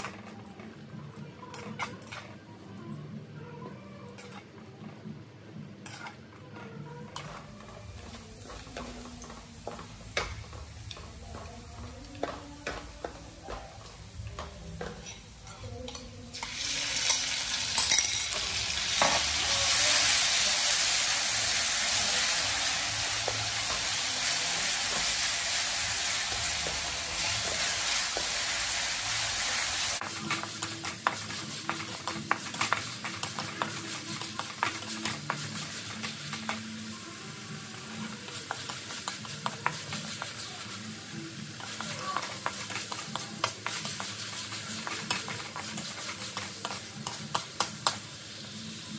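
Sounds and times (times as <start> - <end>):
wooden spatula scraping a wok: 5.8 - 11.6, 29.7 - 36.6, 41.5 - 47.6
meat sizzling in hot oil: 16.3 - 48.9.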